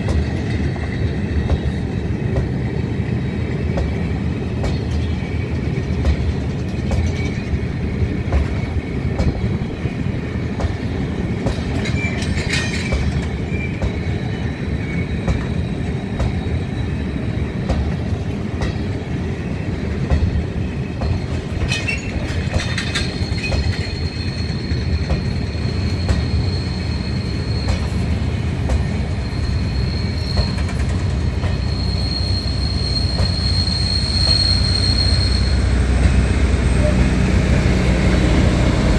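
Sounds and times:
freight train rumbling past: 0:00.0 - 0:38.9
wheels squealing: 0:21.6 - 0:37.3.

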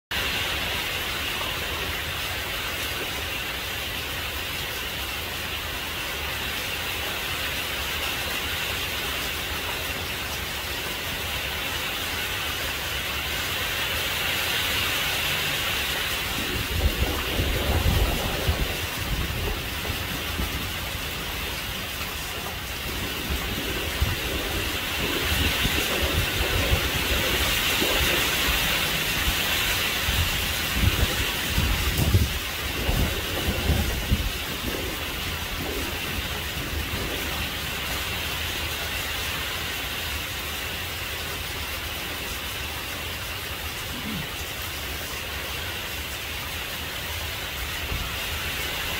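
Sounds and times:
rain falling: 0:00.1 - 0:48.9
wind gusting on microphone: 0:15.7 - 0:38.9.

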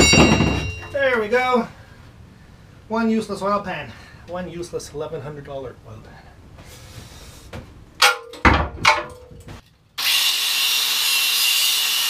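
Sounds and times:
metal clanks: 0:00.0 - 0:01.1, 0:08.0 - 0:09.6
angle grinder grinding metal: 0:10.0 - 0:12.0.

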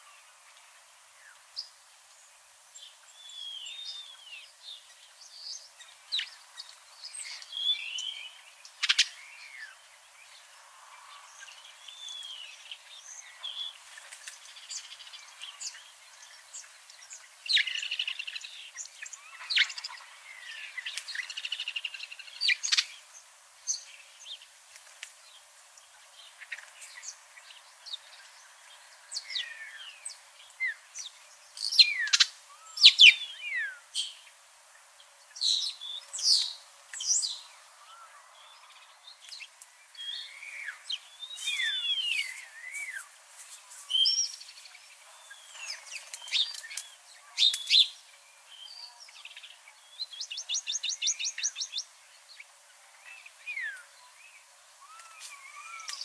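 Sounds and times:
birds chirping and whistling: 0:31.6 - 0:34.2, 0:38.7 - 0:43.1, 0:43.8 - 0:44.4, 0:45.2 - 0:48.0, 0:54.8 - 0:56.0.

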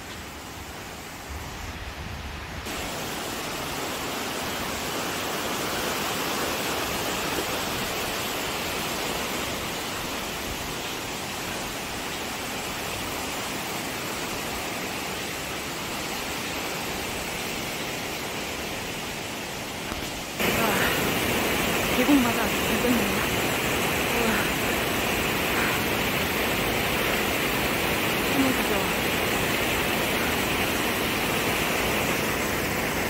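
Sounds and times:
stream rushing over rocks: 0:00.0 - 0:33.0.

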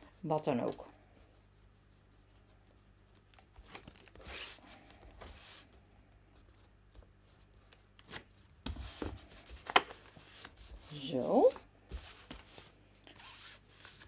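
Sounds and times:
paper rustling: 0:06.4 - 0:14.0.

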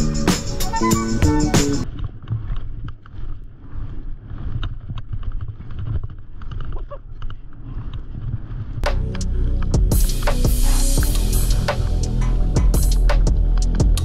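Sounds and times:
music track: 0:00.0 - 0:01.8, 0:08.8 - 0:14.0.

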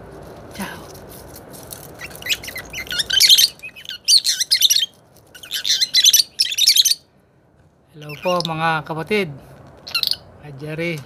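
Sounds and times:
lovebirds chirping: 0:01.9 - 0:07.1, 0:07.9 - 0:08.9, 0:09.8 - 0:10.6.

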